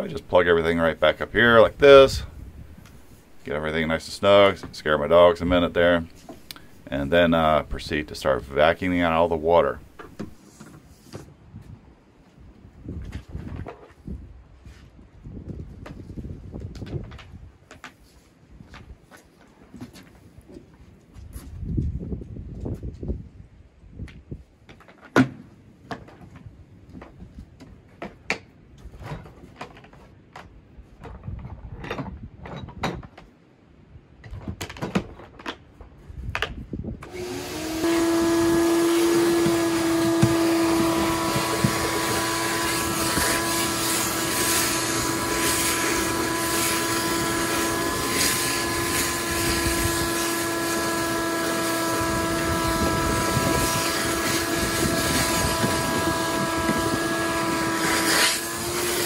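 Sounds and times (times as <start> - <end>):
wet vacuum cleaner whining: 37.0 - 59.0.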